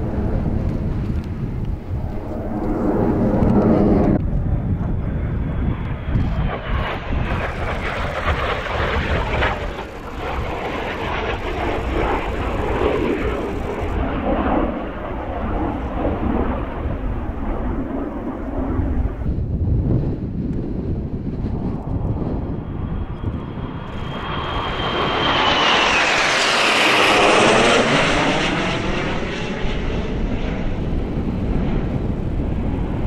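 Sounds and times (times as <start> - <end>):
jet roaring overhead: 0.0 - 33.0
faint falling whine: 7.2 - 14.2, 22.4 - 27.9.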